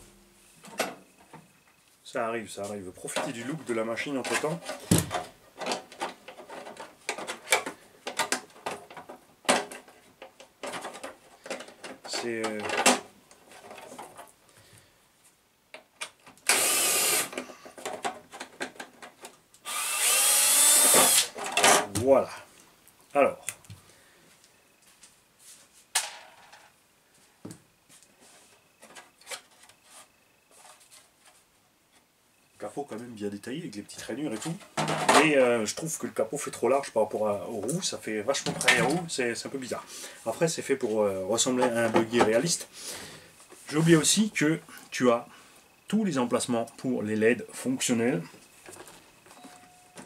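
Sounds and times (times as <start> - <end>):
plastic scratchy rubs: 28.2 - 32.0.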